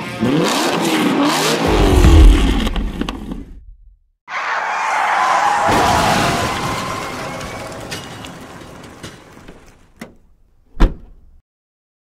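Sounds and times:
vehicle skid and engine noise: 0:04.3 - 0:09.4.

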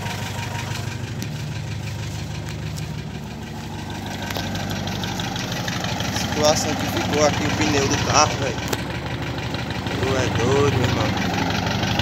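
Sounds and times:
large vehicle engine idling: 0:00.0 - 0:12.0.

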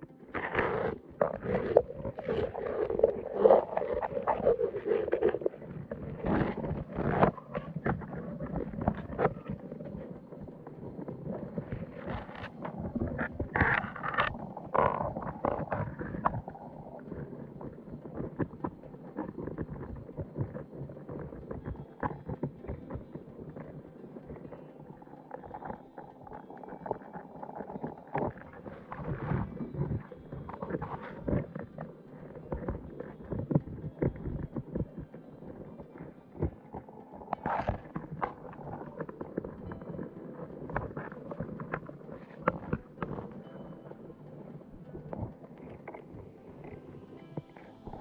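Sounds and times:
low underwater rumble: 0:00.0 - 0:48.0.

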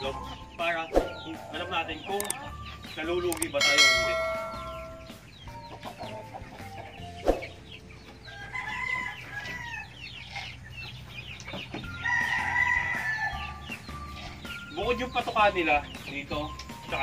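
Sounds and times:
chickens clucking: 0:00.0 - 0:17.0
rooster crowing: 0:08.2 - 0:10.0, 0:11.9 - 0:13.6.

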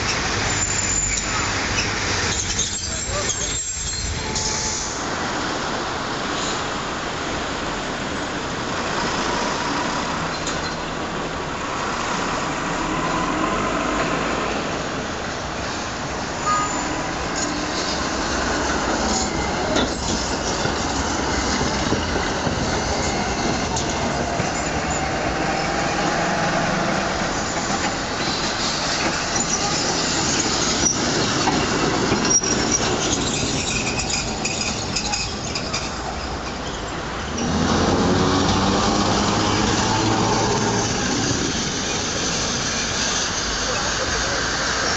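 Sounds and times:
street traffic: 0:00.0 - 0:44.9
tram wheels rolling on rails: 0:00.0 - 0:44.9
faint thin wheel squeals: 0:16.4 - 0:17.6.

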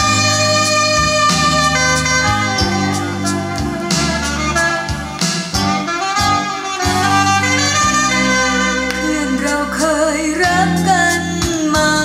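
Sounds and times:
music from a record player: 0:00.0 - 0:12.0.

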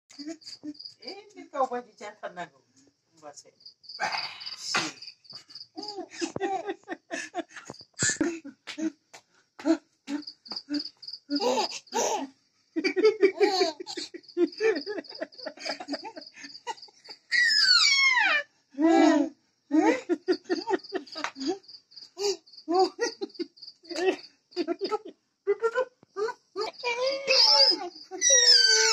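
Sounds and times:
crickets chirping: 0:00.1 - 0:28.9
baby giggling: 0:05.8 - 0:07.0, 0:11.3 - 0:16.8
squeal falling in pitch: 0:17.3 - 0:18.4, 0:28.2 - 0:28.9.

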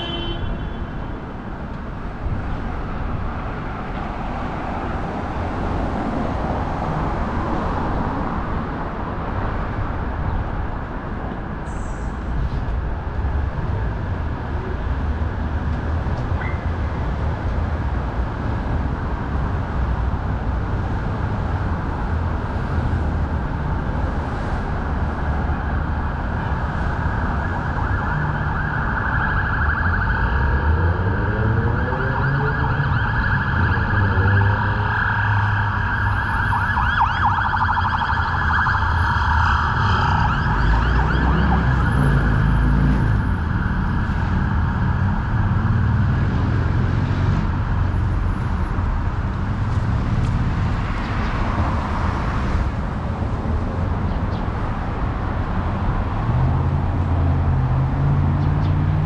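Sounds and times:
city street traffic: 0:00.0 - 0:59.0
emergency vehicle siren: 0:20.8 - 0:53.6.

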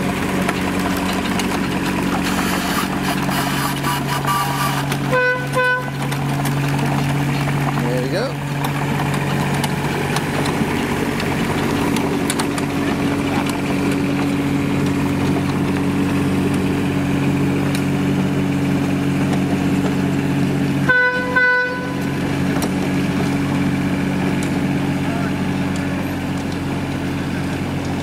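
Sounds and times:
locomotive engine running: 0:00.0 - 0:28.0
short horn toots: 0:02.4 - 0:06.0, 0:20.8 - 0:22.1.

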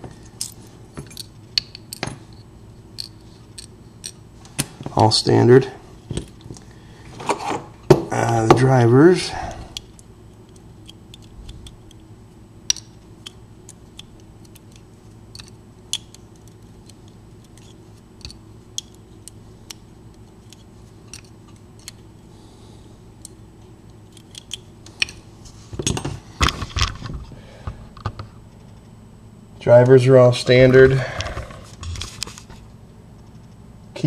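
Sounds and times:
faint steady hum: 0:00.0 - 0:34.0
clattering handling noise: 0:24.3 - 0:28.9.

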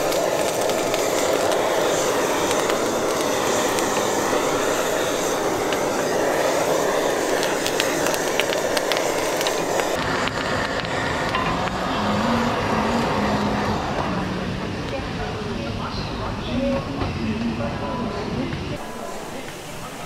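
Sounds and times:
food sizzling: 0:00.0 - 0:14.6, 0:18.8 - 0:20.0
gas flame roaring: 0:00.0 - 0:20.0.

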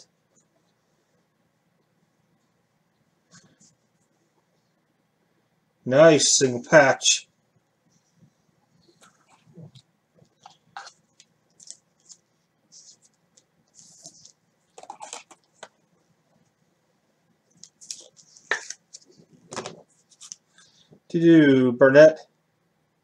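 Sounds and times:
trading cards being handled: 0:08.9 - 0:15.8, 0:17.5 - 0:20.7.

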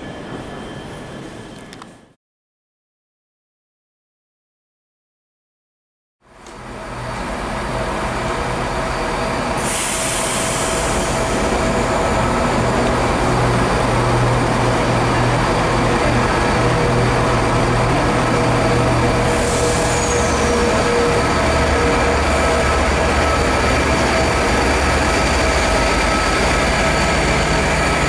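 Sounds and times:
high falling squeal: 0:00.0 - 0:01.7, 0:06.7 - 0:28.0
diesel locomotive engine drone: 0:06.2 - 0:28.0.

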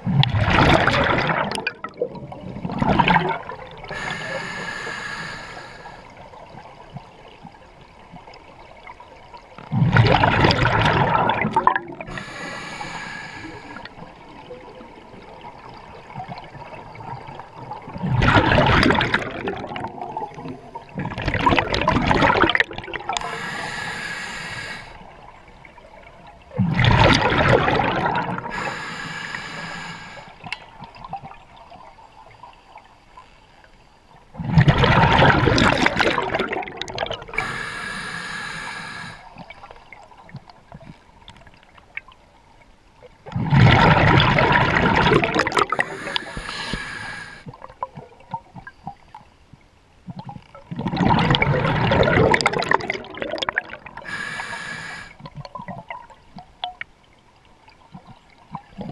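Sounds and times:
bubbling exhalations underwater: 0:00.0 - 0:04.1, 0:09.7 - 0:12.8, 0:17.9 - 0:23.6, 0:26.5 - 0:28.7, 0:34.4 - 0:39.2, 0:43.3 - 0:47.4, 0:50.7 - 0:56.1
hissing regulator inhalation: 0:03.9 - 0:06.1, 0:12.1 - 0:13.9, 0:23.2 - 0:25.0, 0:28.5 - 0:30.4, 0:37.3 - 0:39.3, 0:45.5 - 0:47.5, 0:54.0 - 0:55.2.

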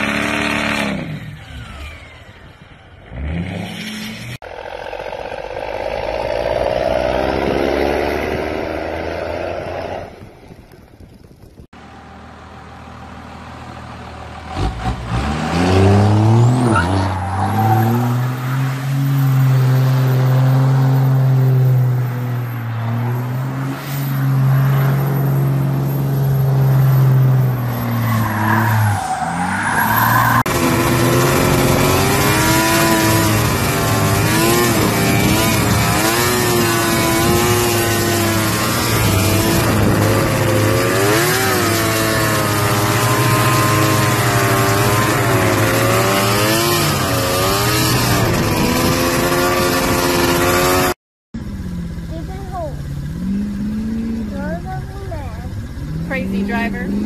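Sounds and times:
engine holding high revs: 0:00.0 - 0:10.2, 0:23.1 - 0:57.0
truck engines revving: 0:00.0 - 0:57.0.

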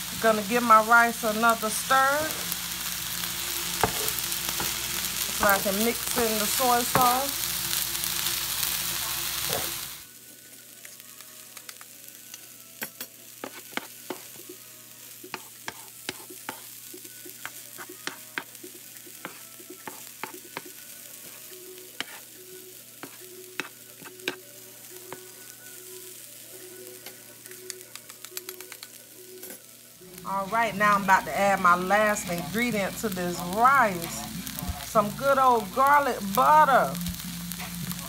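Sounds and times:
rice sizzling on a griddle: 0:00.0 - 0:38.0
spatula scraping on griddle: 0:13.4 - 0:14.4, 0:15.2 - 0:16.7, 0:17.3 - 0:22.3, 0:23.0 - 0:24.4.

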